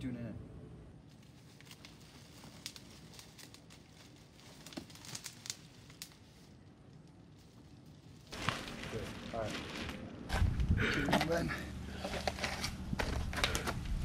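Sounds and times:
plastic wrap crinkling: 1.1s - 10.2s.

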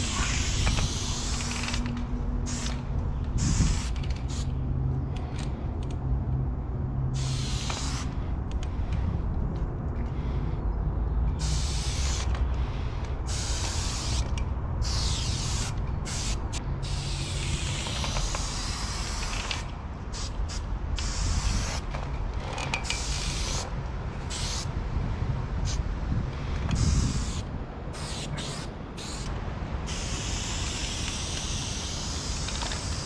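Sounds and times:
spray paint can hissing: 0.0s - 4.6s, 7.1s - 8.2s, 11.4s - 12.4s, 13.2s - 21.9s, 22.9s - 23.6s, 24.3s - 24.7s, 26.7s - 33.0s.

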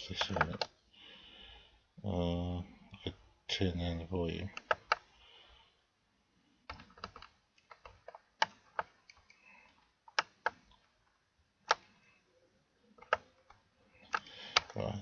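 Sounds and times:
computer mouse clicking: 0.1s - 0.8s, 4.5s - 5.1s, 6.6s - 10.9s, 11.6s - 12.1s, 12.9s - 14.8s.

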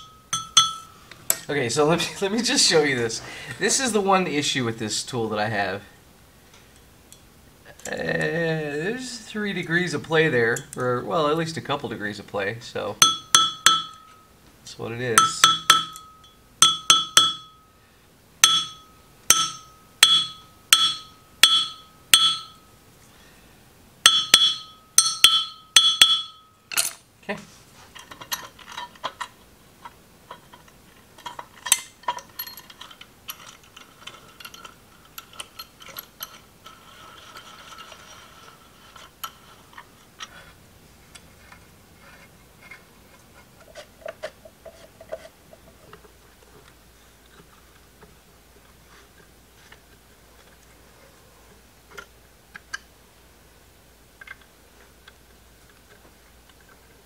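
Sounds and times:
hammer tapping metal punch: 0.0s - 1.5s, 13.0s - 14.2s, 15.2s - 17.6s, 18.4s - 22.6s, 24.1s - 27.0s
metal parts clinking: 24.1s - 27.0s, 27.9s - 40.3s.

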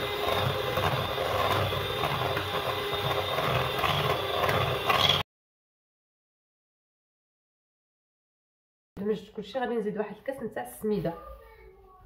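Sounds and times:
electric hand mixer running: 0.0s - 5.2s.

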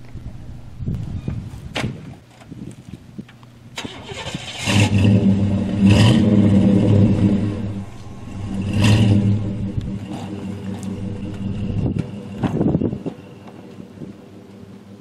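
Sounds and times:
truck engine starting and revving: 3.8s - 13.2s.

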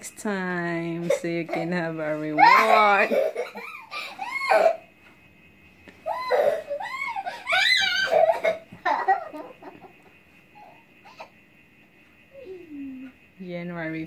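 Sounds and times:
child giggling and squealing: 2.4s - 4.8s, 6.0s - 9.5s.

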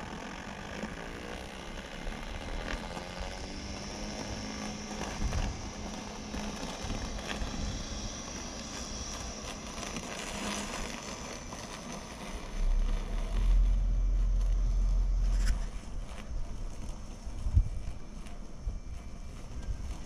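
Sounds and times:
outdoor background hiss: 0.0s - 20.0s
wind buffeting microphone: 5.0s - 5.9s, 12.9s - 20.0s.

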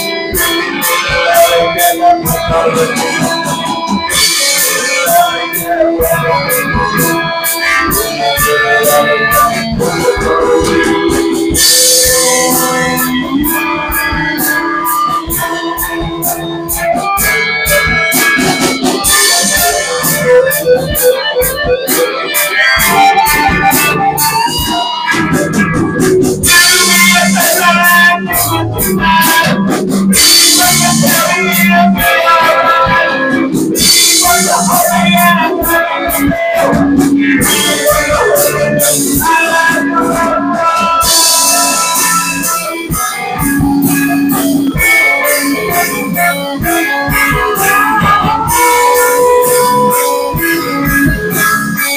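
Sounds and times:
bass: 0.0s - 51.9s
drums: 0.0s - 51.9s
electric guitar: 0.0s - 51.9s
live band music: 0.0s - 51.9s
organ: 0.0s - 51.9s
cymbals: 21.9s - 51.9s.

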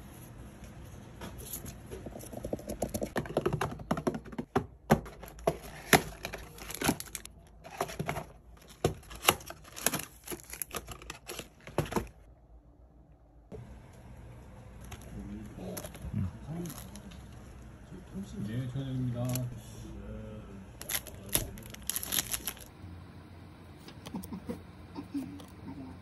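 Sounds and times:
cardboard packaging rustling: 5.0s - 12.3s, 20.8s - 22.7s.

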